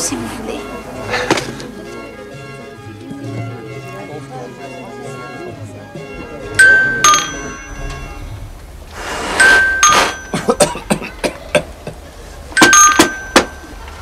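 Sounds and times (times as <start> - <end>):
two-tone doorbell ringing: 6.5 - 8.3, 9.3 - 10.5, 12.6 - 13.9.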